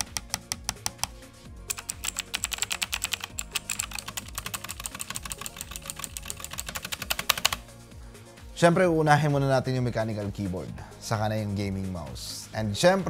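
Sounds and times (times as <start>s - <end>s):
fast typing on mechanical keyboard: 1.7s - 7.6s.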